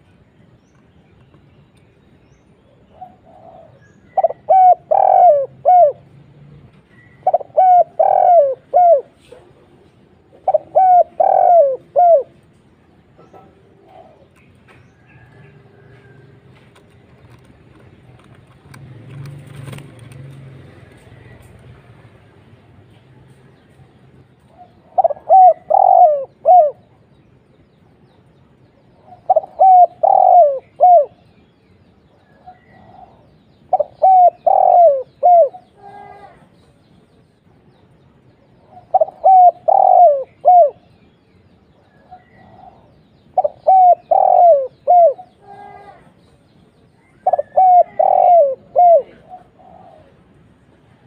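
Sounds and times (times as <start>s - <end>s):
dove cooing: 2.8s - 6.2s, 6.9s - 14.4s, 24.4s - 27.0s, 29.0s - 31.3s, 32.3s - 36.5s, 38.6s - 40.9s, 41.9s - 46.1s, 47.0s - 50.7s.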